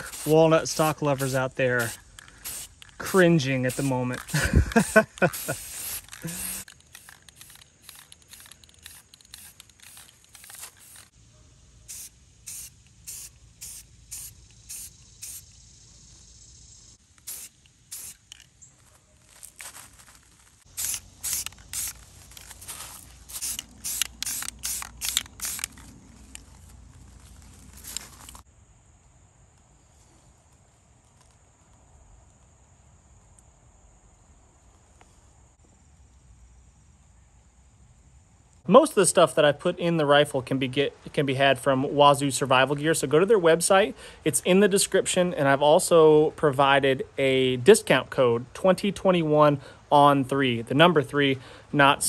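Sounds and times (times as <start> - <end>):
spray paint can hissing: 0.0 - 11.2, 11.8 - 15.8, 17.1 - 18.4, 20.7 - 25.8
high-pitched insect drone: 0.0 - 18.8.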